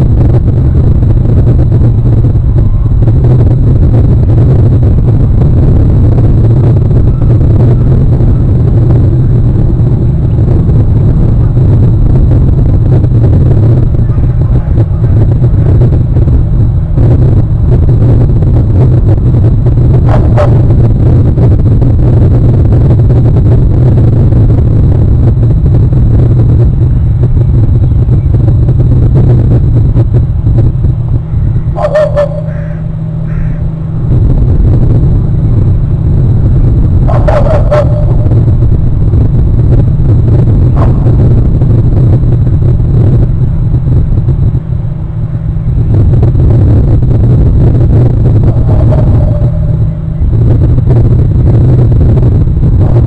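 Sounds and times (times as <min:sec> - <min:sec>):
wind buffeting microphone: 0:00.0 - 0:53.0
bird calling: 0:31.8 - 0:33.7.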